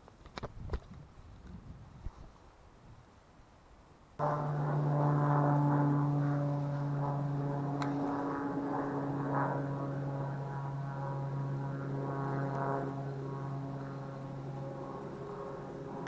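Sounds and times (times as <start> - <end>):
low engine drone: 4.2 - 16.0.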